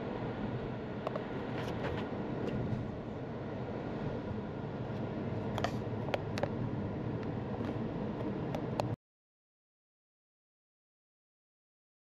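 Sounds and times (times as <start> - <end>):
road and tyre noise in car: 0.0 - 9.0.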